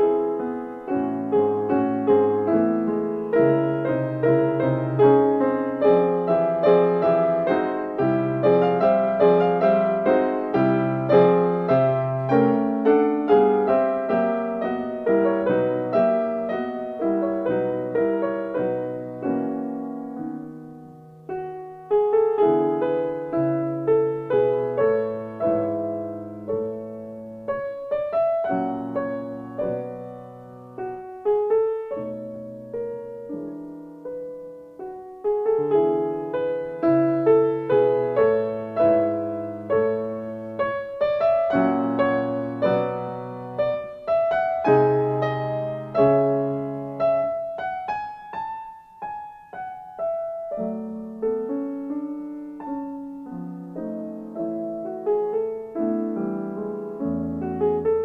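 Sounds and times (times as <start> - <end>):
slow gentle piano music: 0.0 - 58.0.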